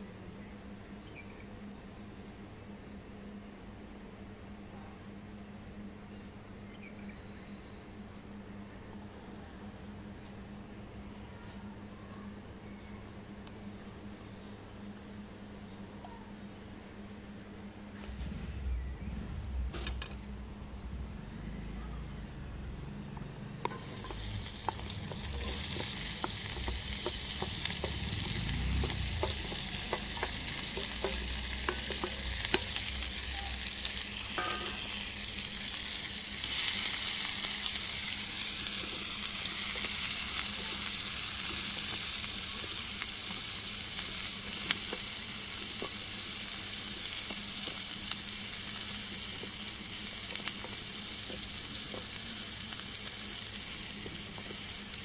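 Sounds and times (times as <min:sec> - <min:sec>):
wooden spatula stirring onions: 0:23.6 - 0:35.4, 0:36.0 - 0:55.0
onion sizzling in hot oil: 0:23.6 - 0:55.0.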